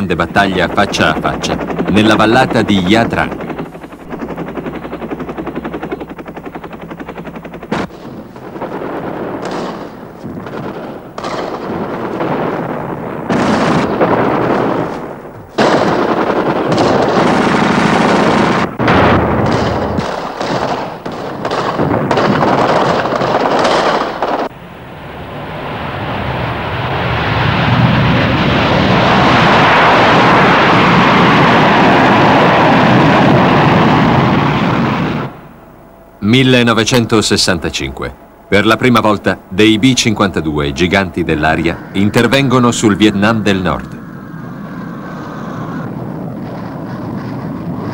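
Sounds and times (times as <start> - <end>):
jet engines roaring: 0.0 - 23.5, 24.1 - 47.9
explosions: 7.7 - 24.5, 25.5 - 35.4
gunfire: 7.7 - 24.5.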